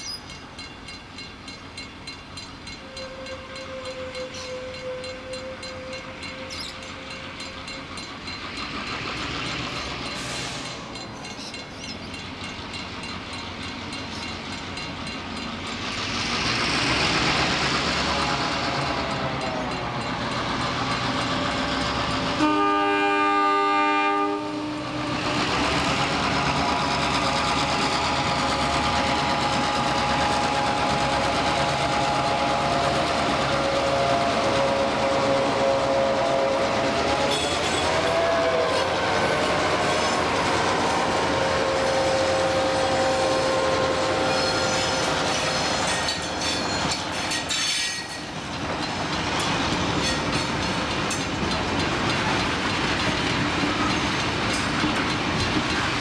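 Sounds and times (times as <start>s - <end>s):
diesel locomotive engines working: 0.0s - 56.0s
train horn blast: 2.7s - 7.5s, 22.3s - 25.6s, 28.2s - 46.1s.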